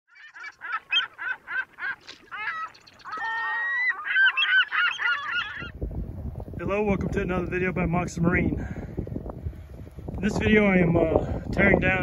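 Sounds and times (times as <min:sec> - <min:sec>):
birds calling: 0:00.1 - 0:05.8.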